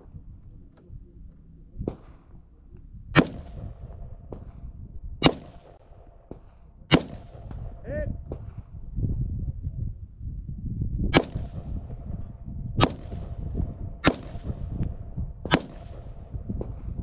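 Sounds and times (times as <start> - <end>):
distant gunshot pops: 1.8 - 2.4, 3.2 - 8.7, 11.2 - 12.1, 12.8 - 13.4, 14.0 - 14.7, 15.4 - 17.0
rifle shots cracking: 3.2 - 8.6, 11.2 - 11.9, 12.8 - 13.4, 14.0 - 14.8, 15.5 - 16.7.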